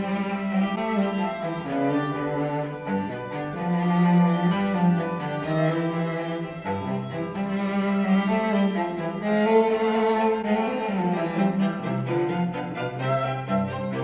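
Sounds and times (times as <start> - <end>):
classical music through speakers: 0.0 - 14.0.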